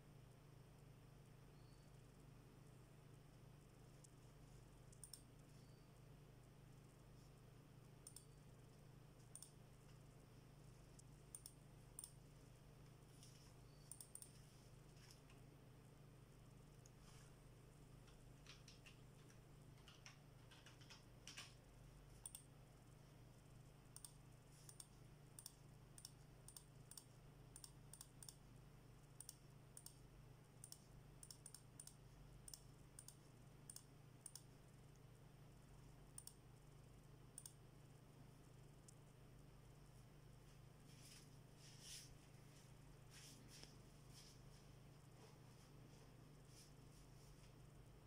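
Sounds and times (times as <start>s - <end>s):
computer keyboard and mouse clicks: 4.9s - 5.8s, 8.0s - 8.4s, 9.2s - 10.0s, 11.0s - 12.2s, 13.7s - 14.4s, 18.0s - 22.9s, 23.9s - 28.4s, 29.1s - 30.0s, 30.6s - 34.5s, 36.2s - 36.8s, 37.4s - 37.6s.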